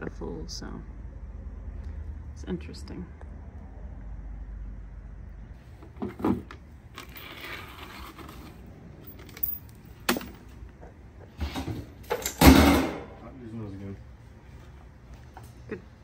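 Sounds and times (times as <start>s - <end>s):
metal scraping: 5.8s - 13.1s.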